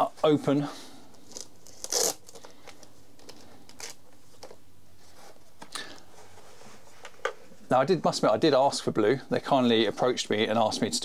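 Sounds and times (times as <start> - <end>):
packaging rustling: 1.1 - 6.1
packaging rasp: 1.3 - 2.8.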